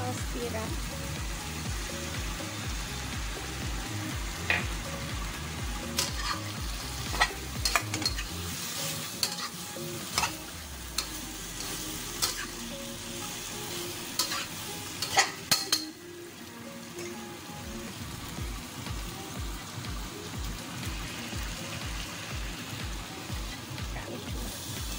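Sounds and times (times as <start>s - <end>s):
frying sizzle in a wok: 0.0s - 24.9s
spatula scraping and knocking wok: 5.8s - 12.7s, 13.7s - 16.0s.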